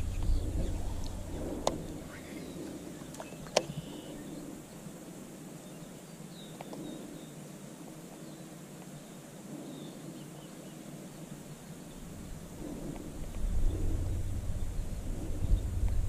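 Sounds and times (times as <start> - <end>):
low rumble: 0.0 - 4.8, 11.9 - 16.0
faint bird chirps: 0.0 - 16.0
sharp clicks: 3.1 - 3.8.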